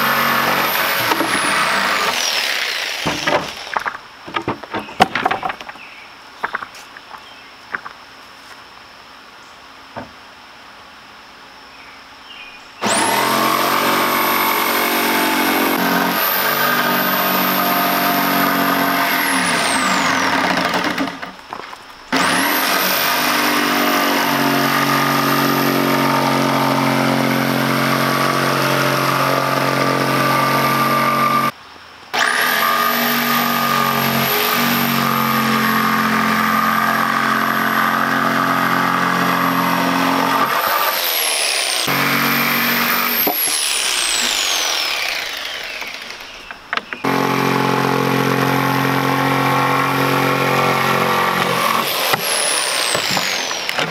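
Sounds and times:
electric jigsaw cutting plywood: 0.0s - 4.0s, 12.8s - 21.4s, 22.1s - 31.5s, 32.2s - 53.9s.

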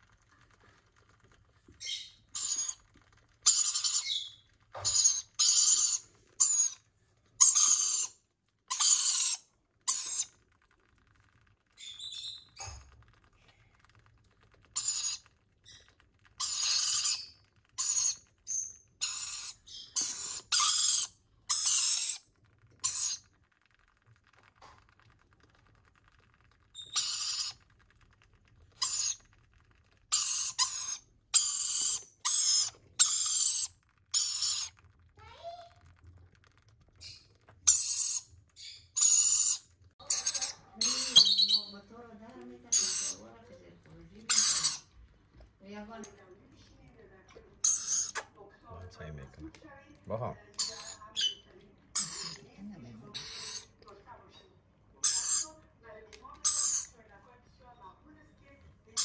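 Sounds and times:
baby parrots begging calls: 1.8s - 2.8s, 3.4s - 6.8s, 7.4s - 10.3s, 14.8s - 15.2s, 16.4s - 22.2s, 22.8s - 23.2s, 26.9s - 27.6s, 28.8s - 29.2s, 30.1s - 34.8s, 37.7s - 41.8s, 42.7s - 43.3s, 44.2s - 44.9s, 50.6s - 51.4s, 52.0s - 52.4s, 53.1s - 53.7s, 55.0s - 55.6s, 56.4s - 56.9s.

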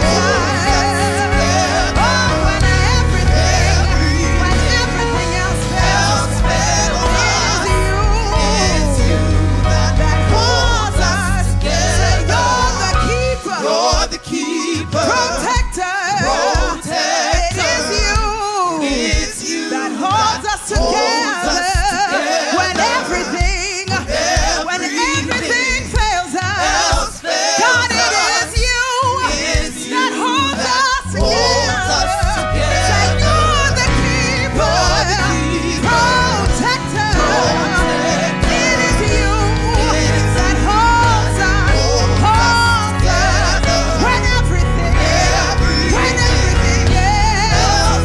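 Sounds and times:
bass guitar: 0.0s - 13.4s, 31.0s - 48.0s
keyboard: 0.0s - 20.2s, 20.8s - 48.0s
backing singers: 0.0s - 48.0s
drums keeping a steady beat: 0.0s - 48.0s
woman singing: 0.0s - 48.0s.

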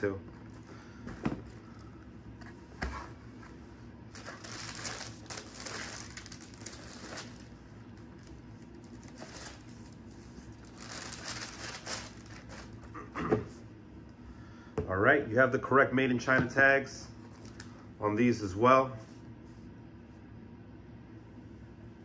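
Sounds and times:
tissue paper rustling: 4.1s - 7.6s, 8.2s - 12.8s.

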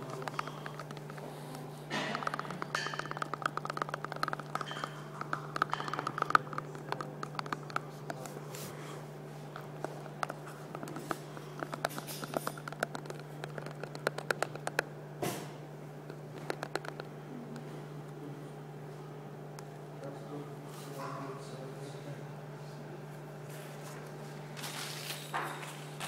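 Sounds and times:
fingers clicking plastic cup: 0.0s - 8.4s, 9.5s - 14.9s, 16.0s - 17.6s.

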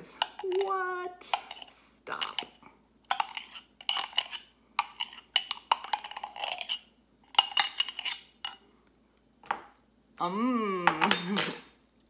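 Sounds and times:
spoon scraping inside glass jar: 3.1s - 8.3s.

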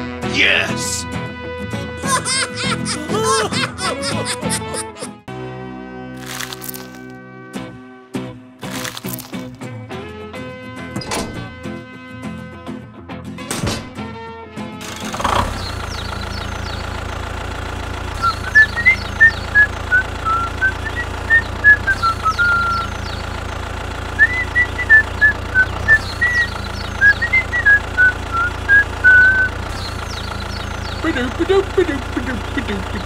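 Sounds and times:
tractor engine idling: 14.8s - 33.0s
person whistling a tune: 18.2s - 22.9s, 24.2s - 29.6s.

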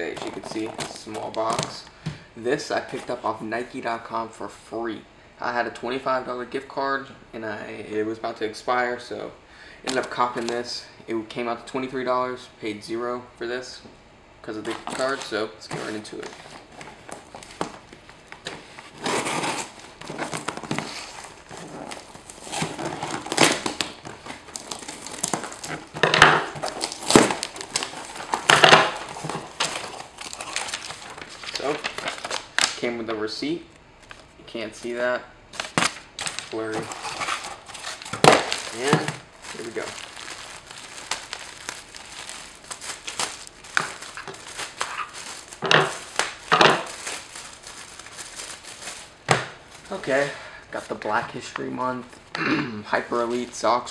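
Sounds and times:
cardboard flaps crackling: 0.0s - 1.8s, 14.7s - 32.8s, 35.6s - 50.0s
plastic bag crinkling: 0.0s - 1.9s, 14.7s - 32.8s, 35.5s - 50.3s
packing tape cut and torn: 18.4s - 32.8s, 35.5s - 49.5s.

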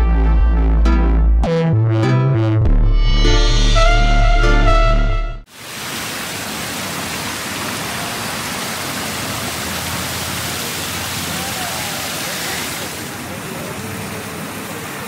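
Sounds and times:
synthesizer music: 0.0s - 5.5s
fountain water splashing: 5.5s - 15.0s.

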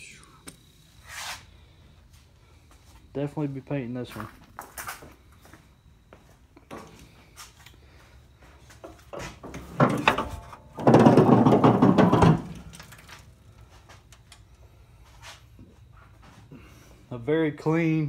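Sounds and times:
truck hood scraping and creaking: 8.8s - 12.8s
metallic clunk: 9.1s - 12.7s.

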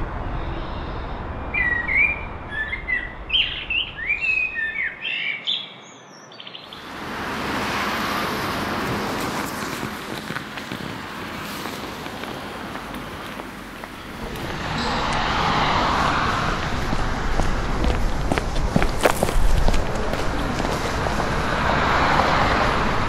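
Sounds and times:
small birds chirping: 0.4s - 7.0s
steady rushing noise: 12.1s - 23.0s.

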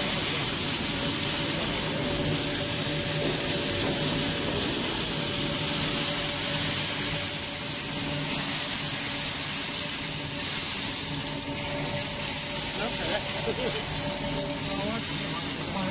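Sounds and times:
conveyor belt rattling: 0.0s - 15.9s.

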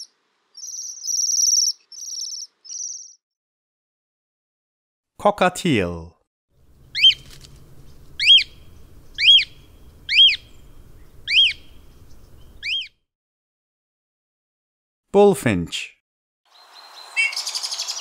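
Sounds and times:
cockatiel calling: 0.0s - 3.2s, 6.9s - 7.4s, 8.1s - 12.9s, 16.5s - 18.0s.

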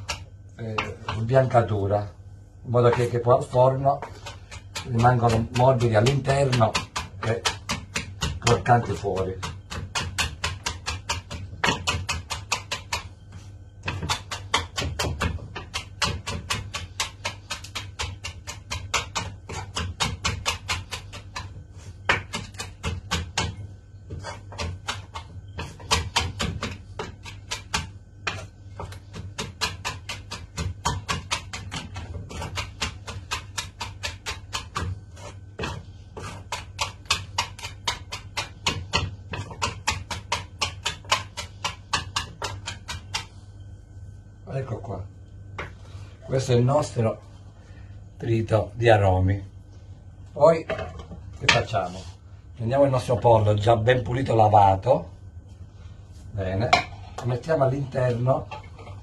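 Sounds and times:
steady low hum: 0.0s - 59.0s
knife chopping on cutting board: 2.9s - 43.4s.

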